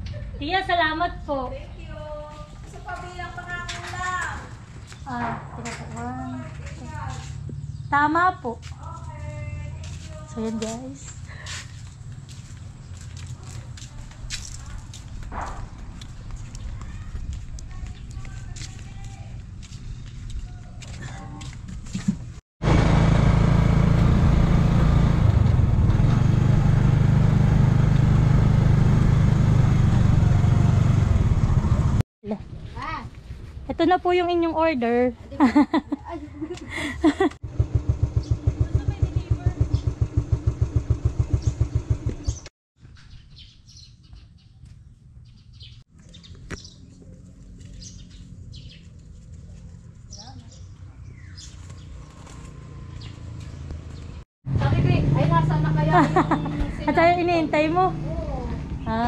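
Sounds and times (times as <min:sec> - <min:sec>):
birds chirping: 0:01.2 - 0:21.4, 0:37.8 - 0:54.2
motorcycle engine running: 0:22.6 - 0:32.0, 0:37.4 - 0:42.5, 0:51.5 - 0:59.0
motorcycle engine idling: 0:37.4 - 0:42.5.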